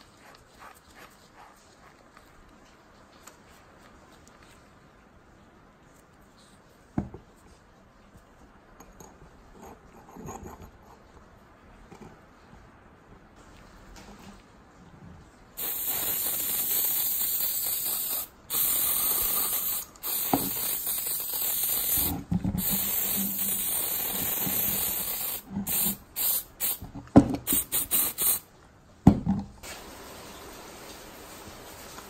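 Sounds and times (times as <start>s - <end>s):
aerosol spray can hissing: 15.6s - 26.8s, 27.4s - 28.5s.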